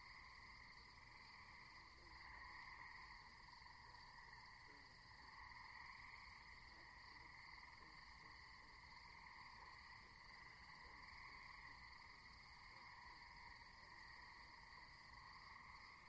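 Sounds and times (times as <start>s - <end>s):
insects chirping: 0.0s - 16.0s.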